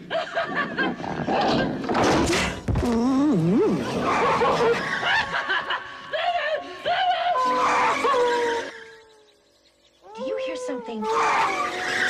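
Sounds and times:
wavering cry: 0:03.8 - 0:12.0
people crying and yelping: 0:03.9 - 0:09.2.

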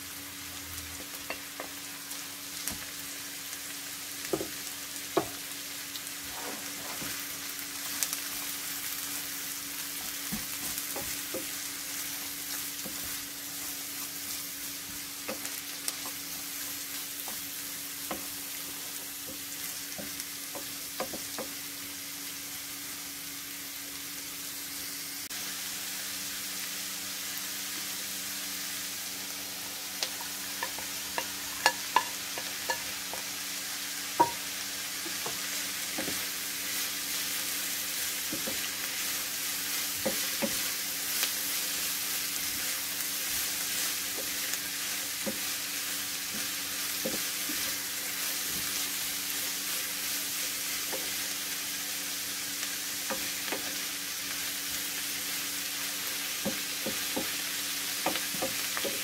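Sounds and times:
vegetables sizzling in a pan: 0:00.0 - 0:59.0
wooden spoon knocking on pan: 0:04.3 - 0:05.4, 0:10.2 - 0:11.6, 0:15.2 - 0:16.2, 0:19.2 - 0:21.6, 0:30.0 - 0:33.3, 0:34.2 - 0:34.4, 0:38.3 - 0:38.6, 0:40.0 - 0:40.6, 0:45.2 - 0:45.4, 0:46.3 - 0:47.7, 0:56.4 - 0:57.4, 0:58.0 - 0:59.0.

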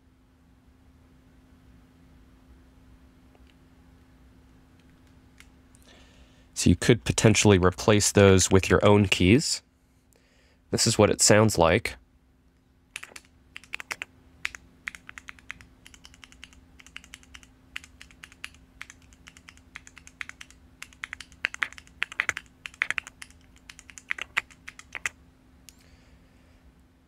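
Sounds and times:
keypad keys clacking: 0:13.0 - 0:25.1.

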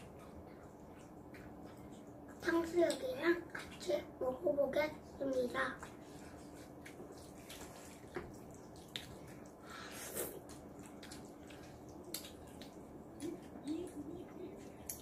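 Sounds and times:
noodles slurped and chewed: 0:05.8 - 0:13.6.

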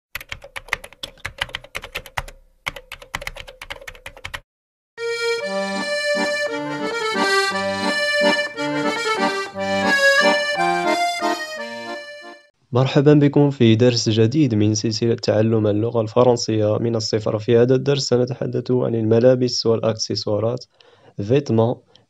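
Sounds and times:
keyboard typing clicks: 0:00.2 - 0:04.4
instrumental intro tune: 0:05.0 - 0:12.5.

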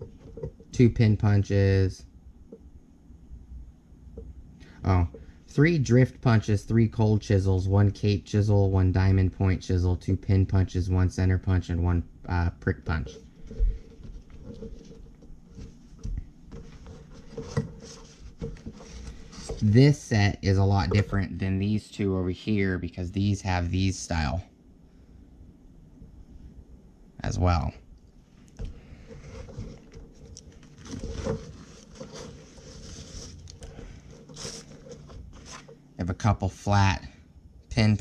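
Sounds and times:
fabric rustling: 0:28.3 - 0:35.9.

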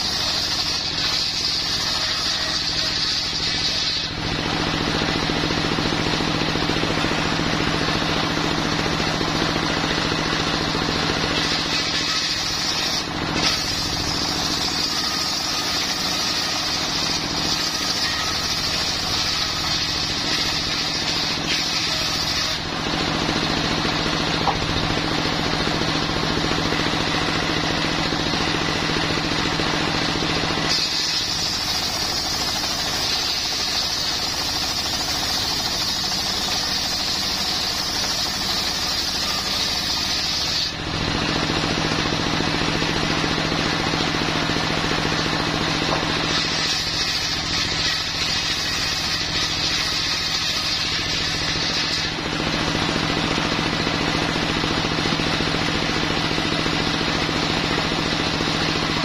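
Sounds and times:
circular saw cutting wood: 0:00.0 - 0:59.0
diesel engine running: 0:04.1 - 0:21.5, 0:22.6 - 0:30.7, 0:40.8 - 0:50.1, 0:50.8 - 0:59.0.

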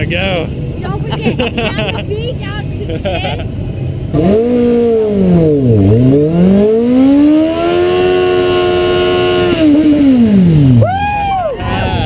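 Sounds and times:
motorcycle engine revving hard: 0:04.1 - 0:10.8.

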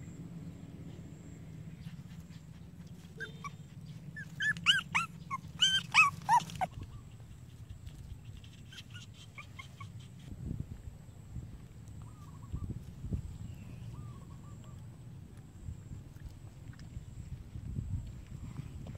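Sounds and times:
puppies whimpering: 0:01.9 - 0:10.3.

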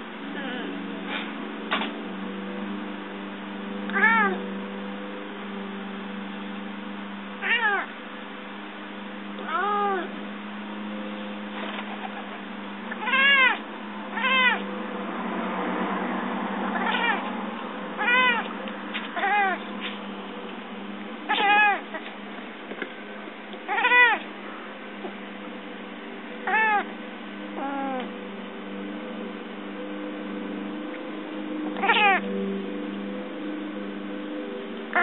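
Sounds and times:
steady low hum: 0:00.0 - 0:35.0
cat chirping: 0:04.0 - 0:04.4, 0:09.5 - 0:10.1, 0:13.0 - 0:14.6, 0:16.7 - 0:17.3, 0:18.0 - 0:18.5, 0:19.2 - 0:19.6, 0:21.3 - 0:22.1, 0:23.7 - 0:24.2, 0:26.5 - 0:26.9, 0:27.6 - 0:28.1, 0:31.8 - 0:32.2.

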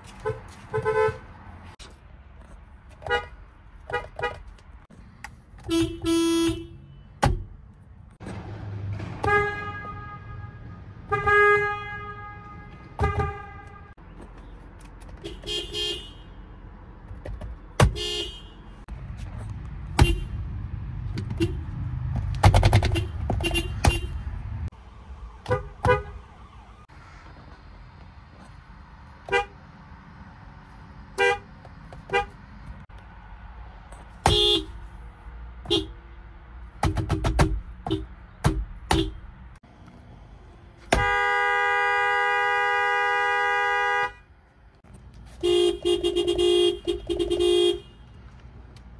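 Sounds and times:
car horns honking: 0:00.2 - 0:01.4, 0:03.0 - 0:04.5, 0:05.6 - 0:07.5, 0:09.1 - 0:14.1, 0:15.1 - 0:16.6, 0:17.8 - 0:18.9, 0:19.9 - 0:20.4, 0:21.2 - 0:21.8, 0:22.7 - 0:24.5, 0:25.4 - 0:26.6, 0:29.2 - 0:29.6, 0:31.1 - 0:32.5, 0:34.2 - 0:34.9, 0:35.6 - 0:36.1, 0:37.8 - 0:38.2, 0:38.8 - 0:39.4, 0:40.8 - 0:44.3, 0:45.4 - 0:48.2.

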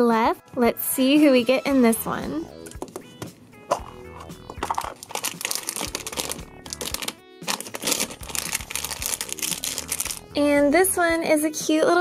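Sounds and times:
background music: 0:00.0 - 0:12.0
plastic bag crinkling: 0:04.5 - 0:10.4.

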